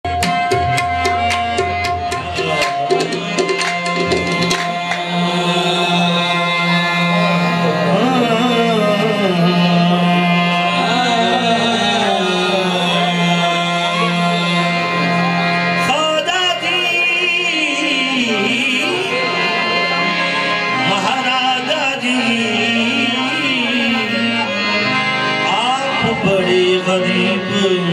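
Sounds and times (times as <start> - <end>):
harmonium drone and melody: 0.0 - 27.9
person singing ornamented vocals: 4.8 - 15.0.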